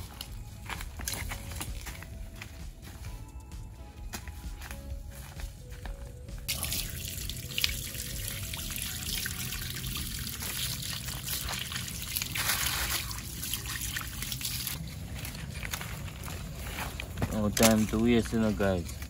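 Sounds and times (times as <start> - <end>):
water splashing and trickling: 6.5 - 19.0.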